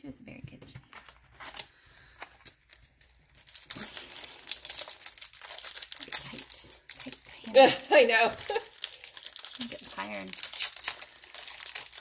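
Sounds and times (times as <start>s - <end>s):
wrapper crinkling: 0.9s - 12.0s.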